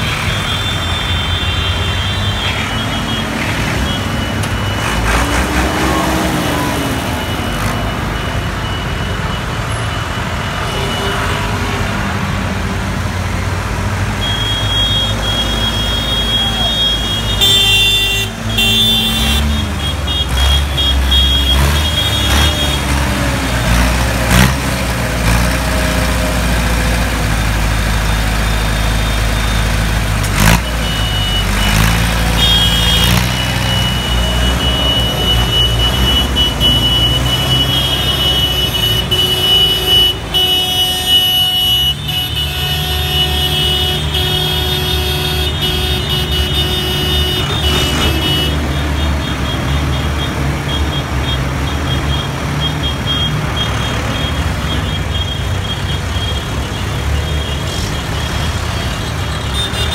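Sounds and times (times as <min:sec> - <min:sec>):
tractor diesel engines running: 0:00.0 - 0:59.9.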